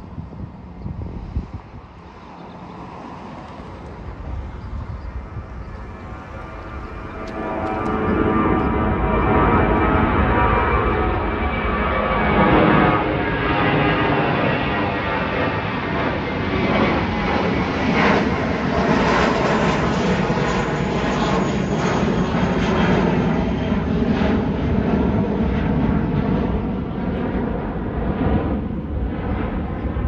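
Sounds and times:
jet engines roaring overhead: 0:00.0 - 0:30.0.

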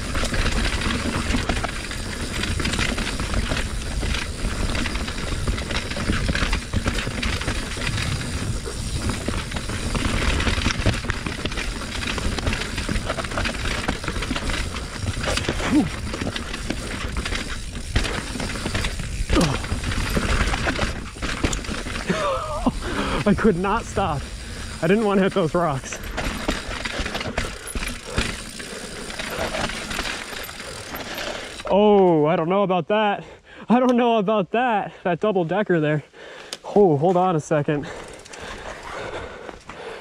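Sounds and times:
tyre noise on dirt and rock: 0:00.0 - 0:31.8
mountain bike clattering: 0:00.0 - 0:32.0, 0:37.0 - 0:40.0.

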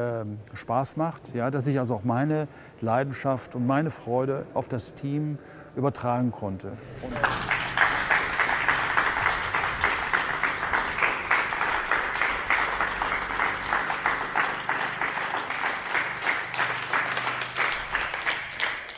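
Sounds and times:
group applauding: 0:06.9 - 0:18.9.

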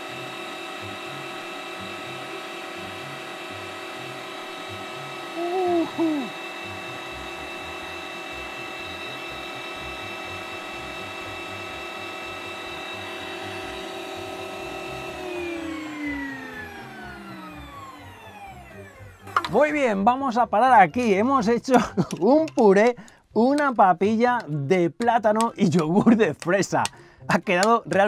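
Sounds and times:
meat grinder motor whining: 0:00.0 - 0:23.2
short vocal sound: 0:05.4 - 0:06.3.

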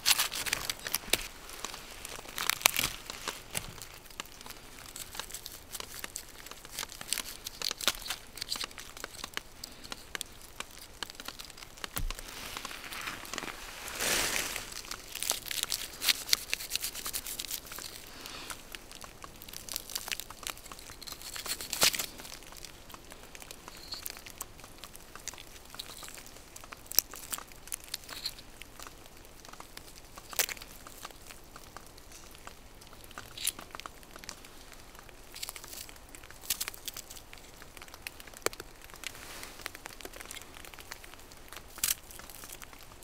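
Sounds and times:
bark and stems crackling: 0:00.0 - 0:43.0
knife trimming stems: 0:14.6 - 0:18.6.

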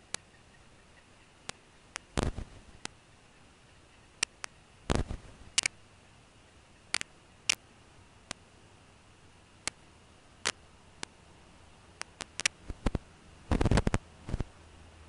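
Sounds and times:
faint steady hiss: 0:00.0 - 0:15.0
sharp clicks: 0:04.2 - 0:05.8, 0:12.0 - 0:14.5.

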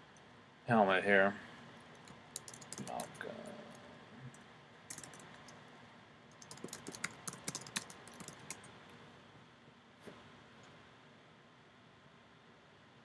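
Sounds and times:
computer keyboard typing: 0:02.0 - 0:03.3, 0:04.9 - 0:05.6, 0:06.3 - 0:08.7.

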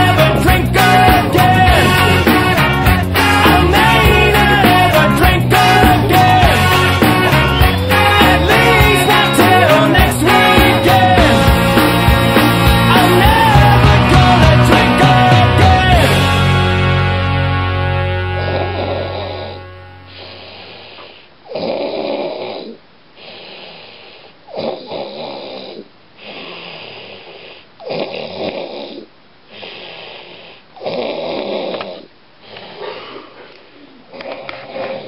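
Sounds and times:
man snoring: 0:18.2 - 0:23.7
quiet breathing: 0:23.1 - 0:24.5, 0:25.8 - 0:27.8, 0:29.4 - 0:30.8, 0:31.7 - 0:35.0.

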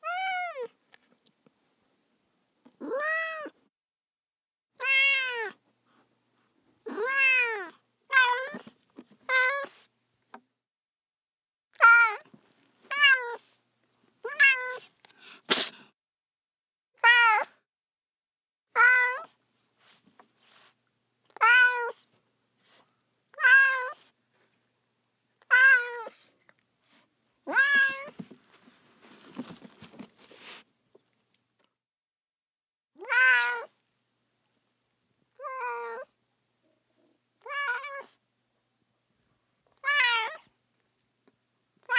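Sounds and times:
cat meowing: 0:00.0 - 0:00.7, 0:02.8 - 0:03.6, 0:04.8 - 0:05.6, 0:06.9 - 0:08.6, 0:12.9 - 0:13.4, 0:14.2 - 0:14.9, 0:18.7 - 0:19.3, 0:21.3 - 0:22.0, 0:23.3 - 0:24.0, 0:25.4 - 0:26.2, 0:27.5 - 0:28.2, 0:33.0 - 0:33.8, 0:35.4 - 0:36.1, 0:37.4 - 0:38.2, 0:39.8 - 0:40.5.

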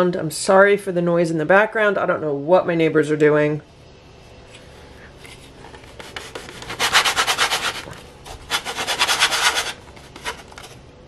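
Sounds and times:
pie crust cutter scraping dough: 0:05.3 - 0:10.8.

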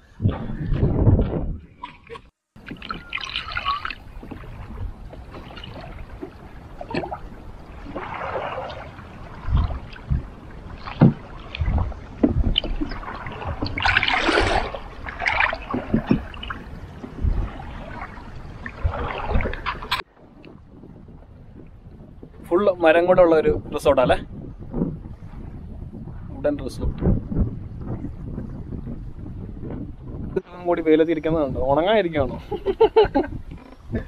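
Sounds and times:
water lapping against canoe: 0:00.0 - 0:22.7, 0:23.8 - 0:30.4
low knocks: 0:09.5 - 0:14.0.

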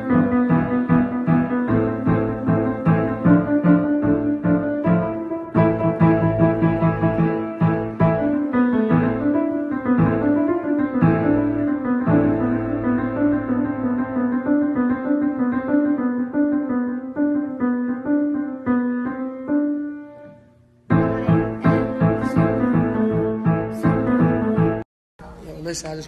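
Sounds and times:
piano playing: 0:00.0 - 0:24.9.

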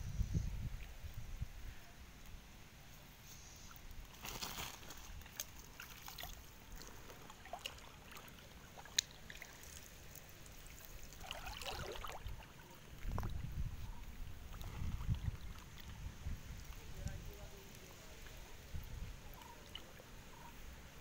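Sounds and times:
water splashing and trickling: 0:03.6 - 0:20.7
person wading through water: 0:04.0 - 0:16.9.

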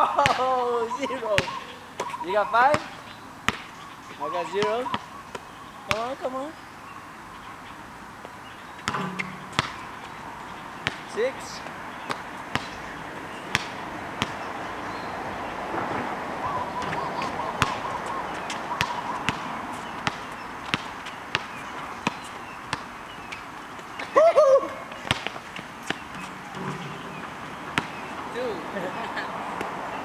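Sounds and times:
basketball bouncing on asphalt: 0:01.3 - 0:03.8, 0:04.6 - 0:06.3, 0:08.2 - 0:14.5, 0:16.8 - 0:24.1, 0:24.9 - 0:28.3, 0:29.6 - 0:30.0.

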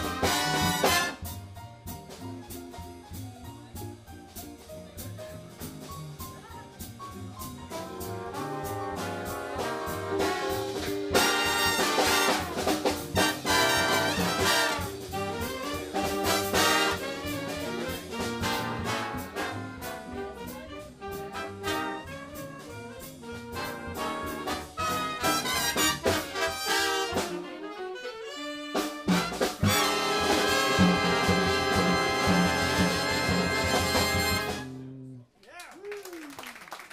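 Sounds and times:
jazz big band playing: 0:00.0 - 0:35.2.

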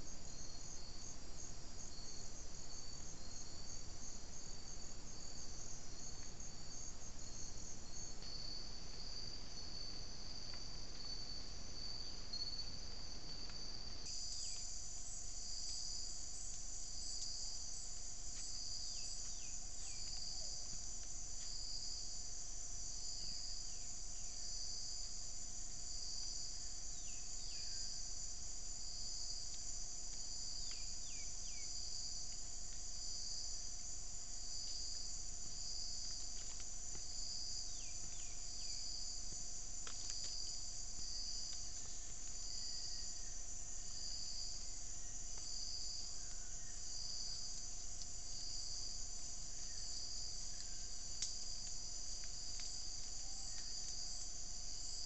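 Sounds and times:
high falling insect chirps: 0:13.4 - 0:22.2, 0:28.8 - 0:55.0.

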